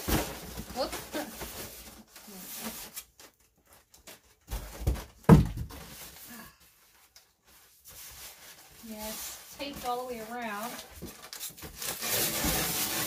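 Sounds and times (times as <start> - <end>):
box knocks and thump: 4.5 - 5.9
cardboard box scraping: 7.9 - 13.0.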